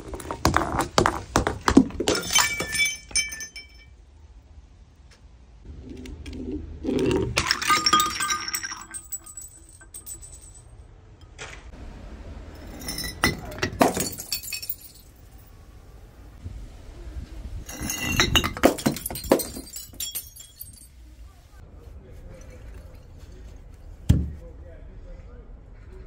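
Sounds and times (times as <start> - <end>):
glass bottles smashing: 1.8 - 4.0, 7.1 - 10.8, 12.6 - 15.4, 17.7 - 21.0.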